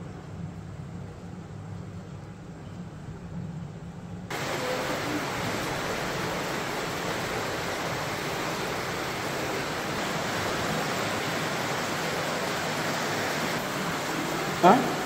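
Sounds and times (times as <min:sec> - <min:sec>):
water rushing: 0:04.3 - 0:15.0.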